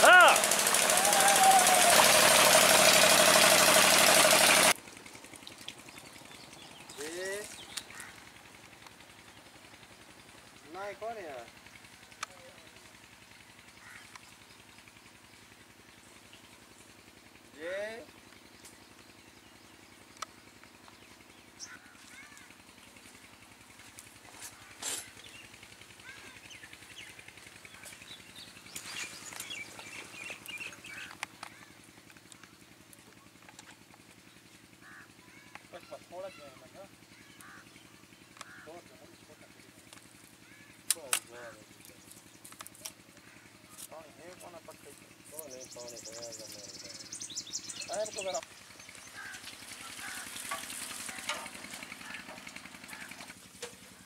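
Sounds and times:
water gushing from pipe: 0.0s - 6.1s, 49.4s - 52.5s
diesel engine chugging: 0.0s - 54.0s
birds chirping: 5.7s - 54.0s.

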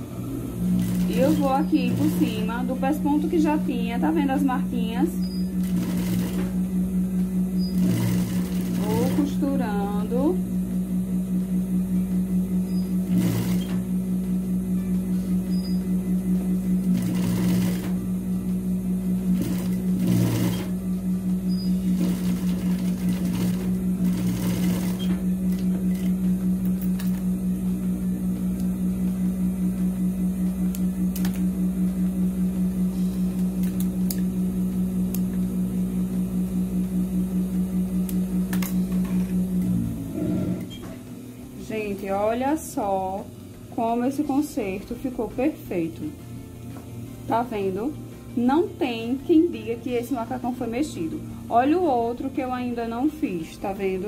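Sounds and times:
sewing machine stitching: 0.6s - 2.8s, 5.2s - 6.6s, 7.6s - 9.5s, 12.7s - 13.8s, 16.8s - 18.0s, 19.3s - 20.8s, 21.5s - 26.2s.

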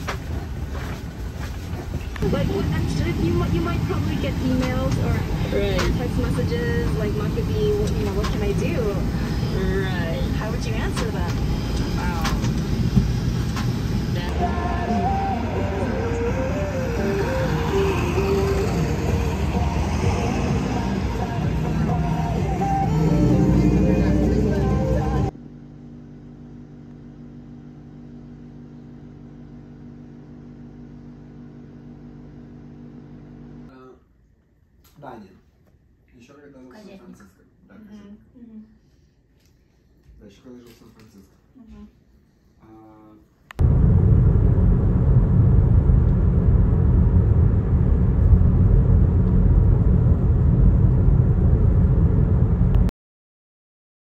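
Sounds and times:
car tyres and engine rumble: 0.0s - 25.3s, 43.5s - 52.9s
machine humming: 2.1s - 33.7s, 43.6s - 52.9s.

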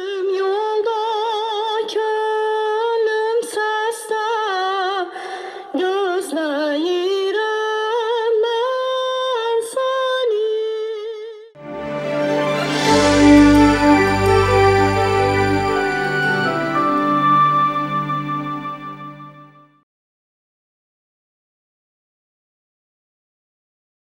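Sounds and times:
instrumental theme music: 11.6s - 19.8s.

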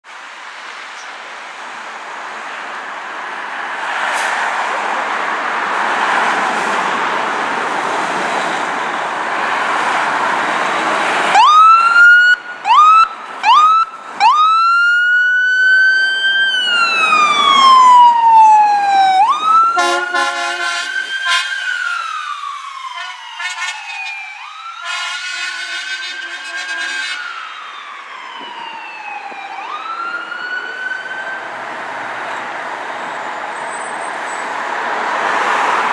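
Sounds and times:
truck engine: 4.0s - 22.4s
fire engine siren wailing: 10.6s - 32.2s
air horn blasts: 19.8s - 21.6s, 23.0s - 23.8s, 24.8s - 27.3s.

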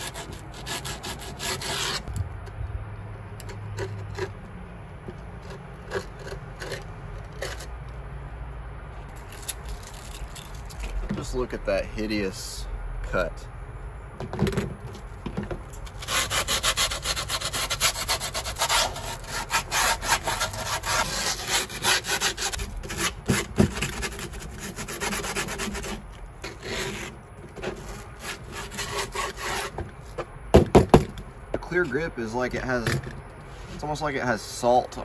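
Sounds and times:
griptape rubbing on skateboard edge: 0.0s - 2.2s, 15.8s - 30.2s.

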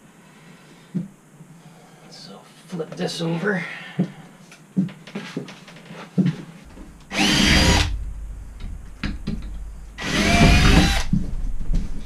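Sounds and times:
cordless drill whining into wood: 7.1s - 7.9s, 10.0s - 11.1s.

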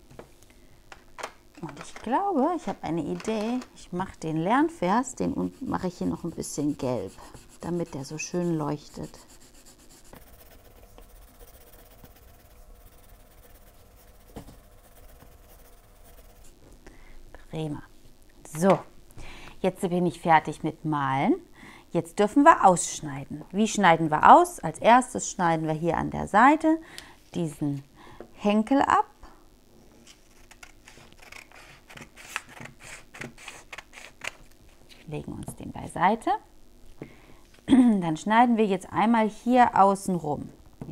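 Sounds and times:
pencil scratching on paper: 5.3s - 16.5s
scissors cutting paper: 30.4s - 34.4s.

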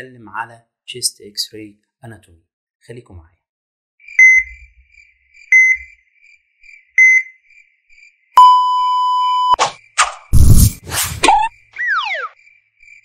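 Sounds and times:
heart monitor beeps: 5.5s - 5.9s, 7.0s - 7.4s, 8.4s - 9.6s
quick whooshes: 10.3s - 11.4s.

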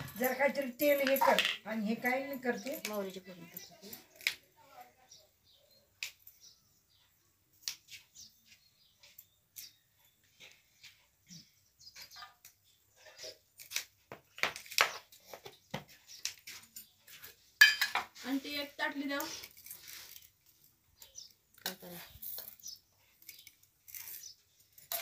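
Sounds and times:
spoons tapping steel plates: 17.6s - 18.1s.

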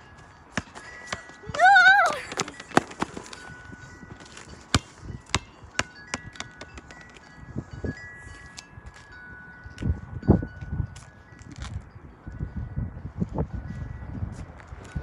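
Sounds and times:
wind chimes ringing: 0.0s - 15.0s
basketball bouncing on pavement: 0.2s - 7.3s.

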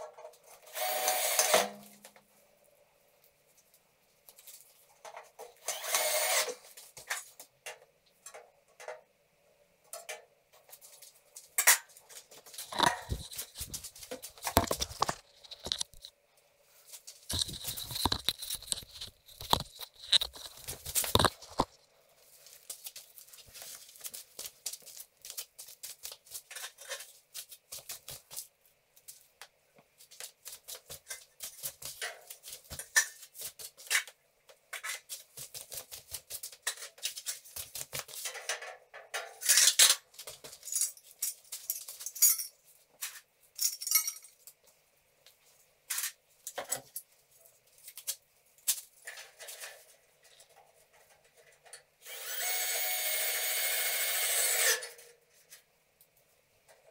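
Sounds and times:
metal profiles clinking and scraping: 12.6s - 13.8s.

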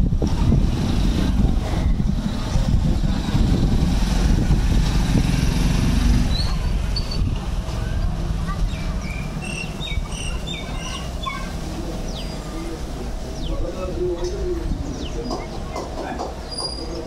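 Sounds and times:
loud low rumbling: 0.0s - 15.2s
high bird chirps: 6.3s - 7.3s, 8.7s - 12.5s.

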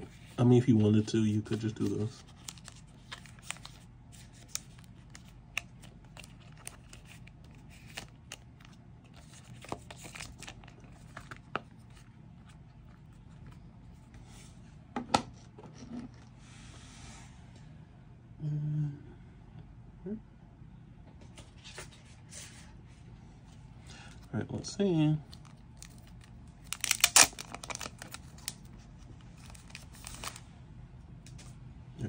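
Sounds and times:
rustling of plastic card sleeves: 0.1s - 14.1s, 25.3s - 30.4s.

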